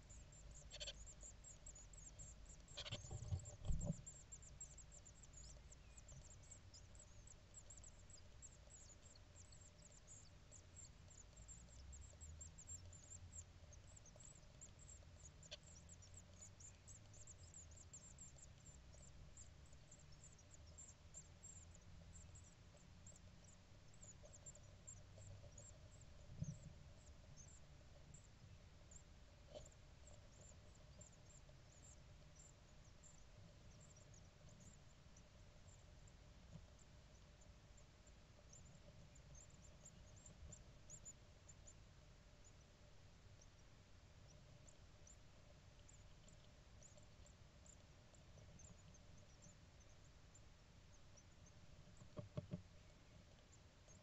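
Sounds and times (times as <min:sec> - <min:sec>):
nestlings begging cheeps: 0:00.0 - 0:26.2
faint steady hum: 0:00.0 - 0:54.0.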